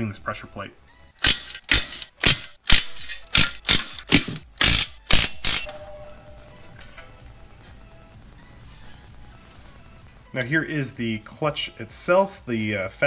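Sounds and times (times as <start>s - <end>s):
faint background music: 0.0s - 13.0s
impact wrench bursts: 1.2s - 5.7s.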